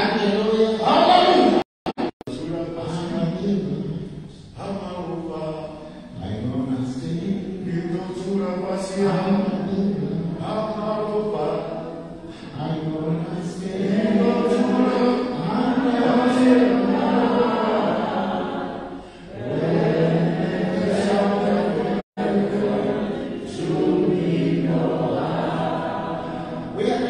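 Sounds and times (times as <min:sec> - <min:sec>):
voices singing unaccompanied chant: 0:12.6 - 0:27.0.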